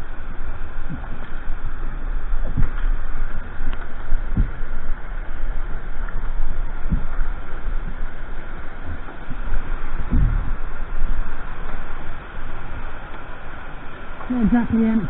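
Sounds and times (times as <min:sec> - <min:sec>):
white water rushing: 0:00.0 - 0:15.0
low thumps: 0:00.8 - 0:12.0.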